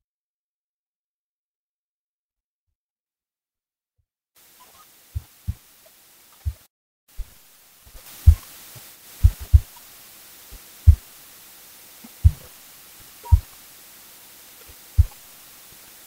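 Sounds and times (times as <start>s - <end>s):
faint steady hiss: 4.4s - 16.0s
low dull thumps: 8.2s - 8.5s, 9.2s - 9.8s, 10.6s - 11.1s, 12.1s - 12.5s, 15.0s - 15.2s.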